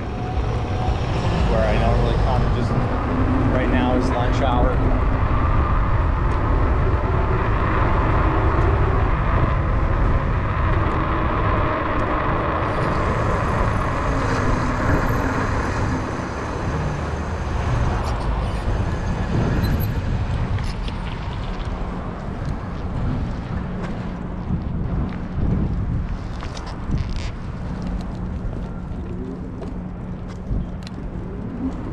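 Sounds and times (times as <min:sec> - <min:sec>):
city traffic: 0:00.0 - 0:31.9
e-bike road noise: 0:00.0 - 0:31.9
wind rumble on microphone: 0:00.0 - 0:31.9.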